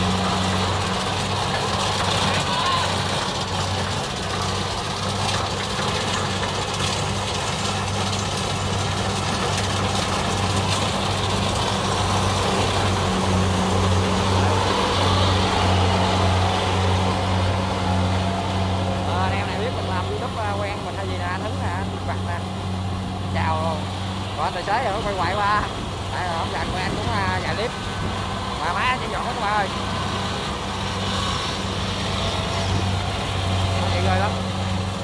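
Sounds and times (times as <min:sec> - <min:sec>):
combine harvester engine drone: 0:00.0 - 0:35.0.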